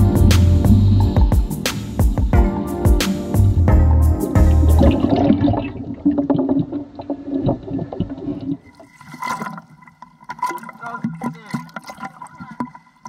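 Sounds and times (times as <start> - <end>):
muffled water sloshing and gurgling: 4.7 - 13.0
water lapping at surface: 4.8 - 13.0.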